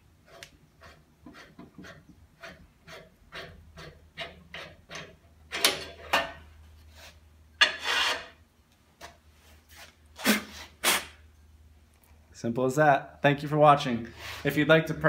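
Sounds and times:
tap rasping in metal hole: 0:00.3 - 0:05.0
metal workpiece scraping on table: 0:07.0 - 0:08.4.

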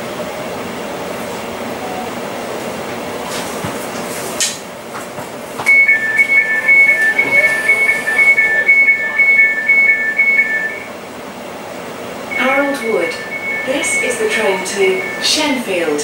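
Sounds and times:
rapid two-tone electronic beeping: 0:05.7 - 0:10.9, 0:12.3 - 0:15.6.

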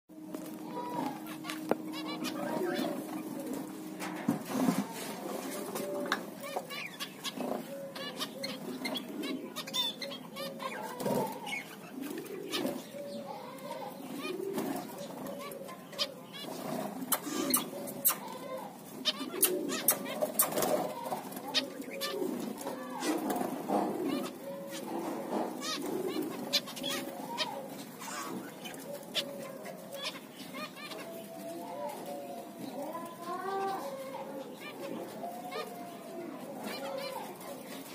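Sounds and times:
finches calling: 0:00.2 - 0:04.1
finches chirping: 0:00.4 - 0:04.2, 0:06.4 - 0:13.3.

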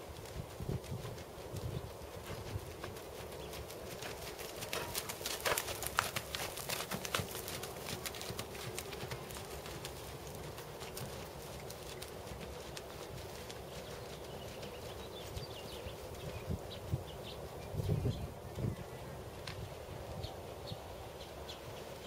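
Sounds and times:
horse trotting on sand: 0:00.0 - 0:19.7.

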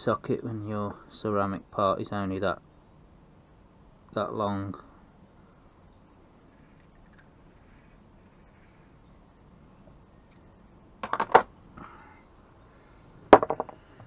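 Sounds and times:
metallic clinks and rattles: 0:10.4 - 0:11.5.

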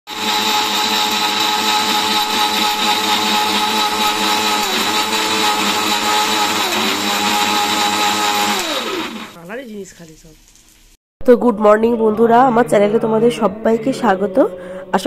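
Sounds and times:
blender motor whine: 0:00.1 - 0:09.4.

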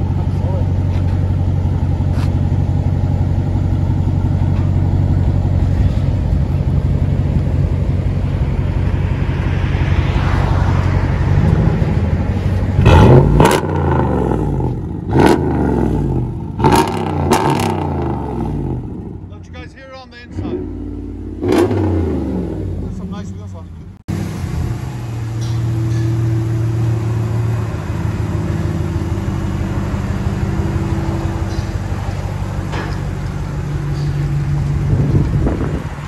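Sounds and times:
loud engine idling: 0:00.0 - 0:09.4
engine revving: 0:08.4 - 0:19.3, 0:20.2 - 0:23.4.

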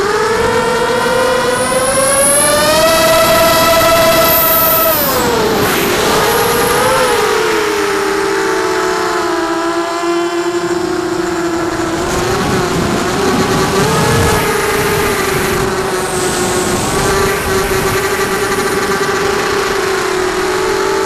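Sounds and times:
drone propellers whining: 0:00.0 - 0:21.0.

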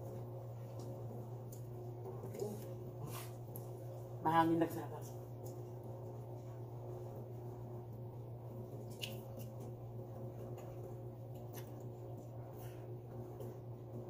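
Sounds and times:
steady low hum: 0:00.0 - 0:14.0
small sticky clicks: 0:08.8 - 0:09.7.

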